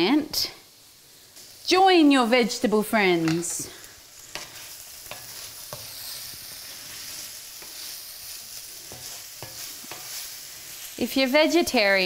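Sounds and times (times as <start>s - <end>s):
vegetables sizzling in a skillet: 0.0s - 12.0s
wooden spatula scraping a pan: 3.2s - 11.2s.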